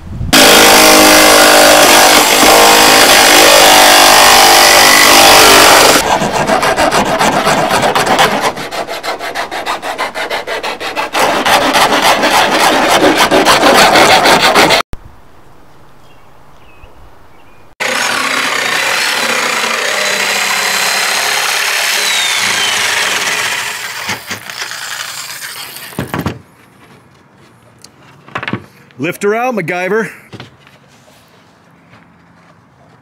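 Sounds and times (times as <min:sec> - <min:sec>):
cutting tool rasping: 0:00.4 - 0:14.9, 0:17.8 - 0:26.0.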